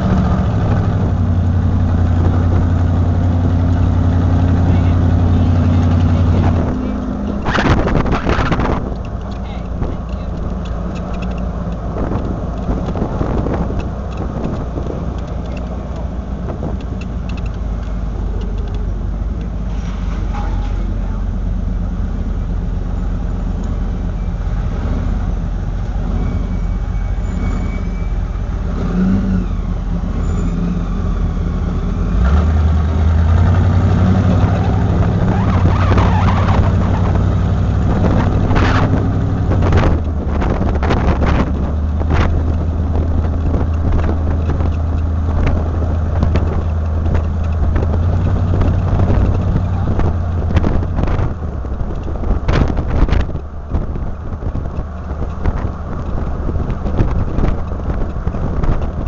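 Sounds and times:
road noise: 0.0s - 59.0s
vehicle engine: 0.0s - 59.0s.

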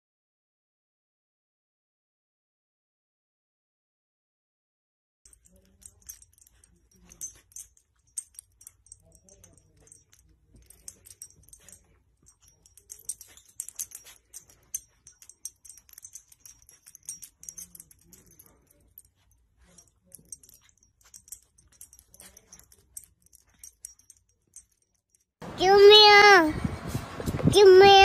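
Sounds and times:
light crisp clicks and crinkles: 5.3s - 25.3s.

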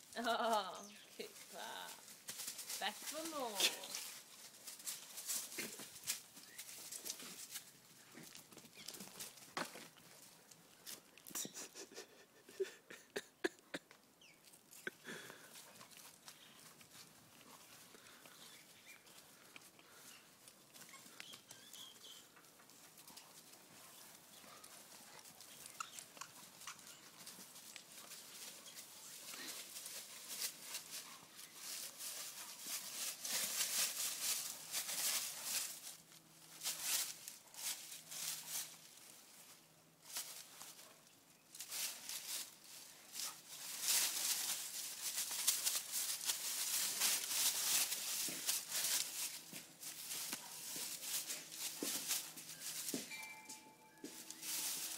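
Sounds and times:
dogs scuffling and clicking: 1.3s - 11.2s, 15.5s - 39.0s, 41.6s - 53.1s, 54.1s - 54.9s.

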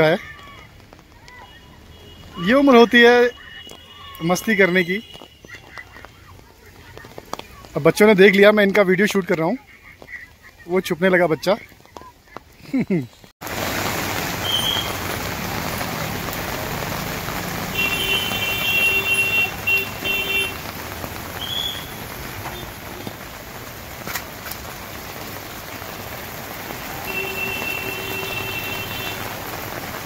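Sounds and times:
heavy rain: 0.0s - 30.0s
vehicle horn honking: 17.7s - 20.7s, 26.8s - 29.3s.

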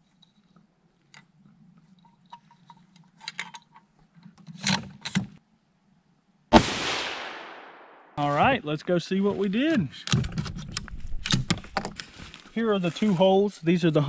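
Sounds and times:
rifle bolt metallic clicks: 10.0s - 11.9s.

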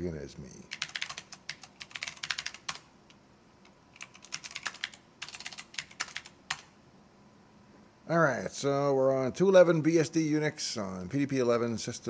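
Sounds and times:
keyboard typing: 0.7s - 2.9s, 3.6s - 6.7s.

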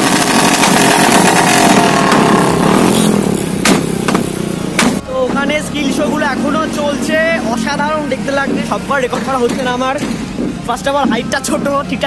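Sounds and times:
sharp cracks: 0.0s - 5.0s
motorcycle engine revving loudly: 0.0s - 12.0s.

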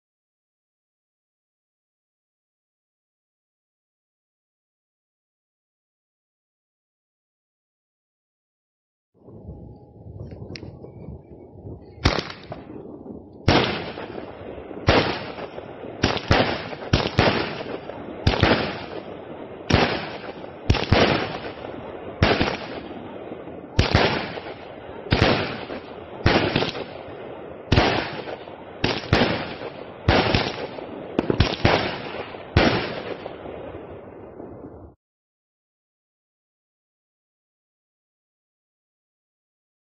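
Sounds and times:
fireworks banging: 10.2s - 34.8s.

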